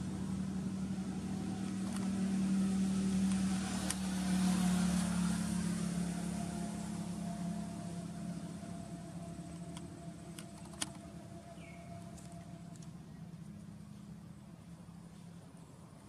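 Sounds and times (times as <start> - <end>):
low engine hum: 0.0 - 16.0.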